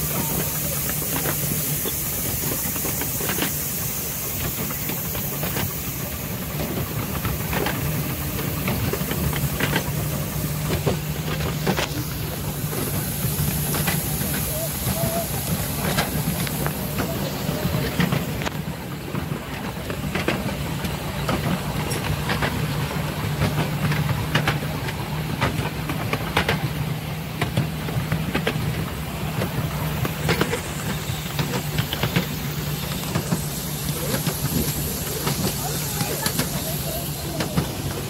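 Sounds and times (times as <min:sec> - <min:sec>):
faint steam hiss: 0:00.0 - 0:38.0
train wheels rumbling: 0:00.0 - 0:38.0
wheels clicking over rail joints: 0:00.0 - 0:38.0.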